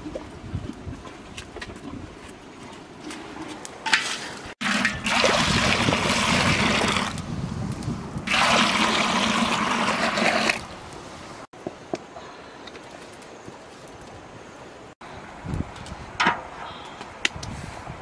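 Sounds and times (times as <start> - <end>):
water pouring: 4.6 - 7.2, 8.3 - 10.7.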